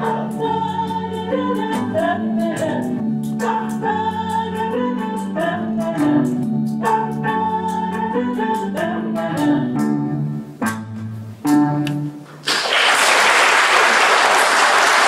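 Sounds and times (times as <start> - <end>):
voices singing in harmony: 0.0 - 10.2
bass guitar: 0.0 - 12.4
electric guitar: 0.0 - 12.5.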